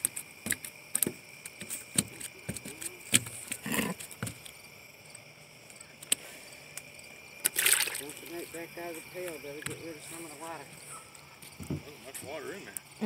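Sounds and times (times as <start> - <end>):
fish slapping on wooden boards: 0.0 - 4.6, 7.4 - 8.4
hand scuffle: 1.6 - 4.4.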